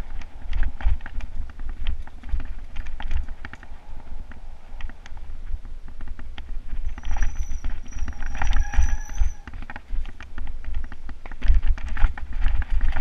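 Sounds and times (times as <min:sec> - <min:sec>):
wind rumbling on microphone: 0:00.0 - 0:13.0
bike chain and frame clattering: 0:06.0 - 0:13.0
thin high squeal: 0:07.0 - 0:09.6.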